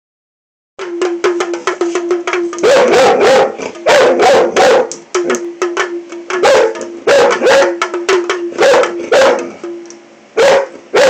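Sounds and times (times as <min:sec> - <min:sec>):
rapid tapping on hand drum: 0:00.8 - 0:10.0
dog barking: 0:02.5 - 0:05.0, 0:06.4 - 0:07.9, 0:08.6 - 0:09.5, 0:10.4 - 0:11.0.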